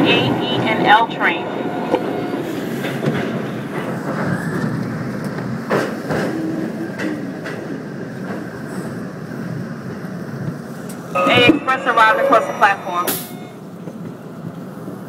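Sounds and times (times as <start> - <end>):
subway train wheels rumbling: 0.0 - 15.0
sharp clacks on track: 2.8 - 8.5.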